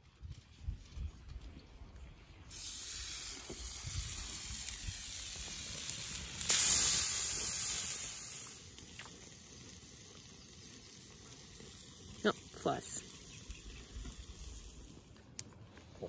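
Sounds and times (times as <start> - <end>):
steaks sizzling on hot plate: 2.5 - 15.1.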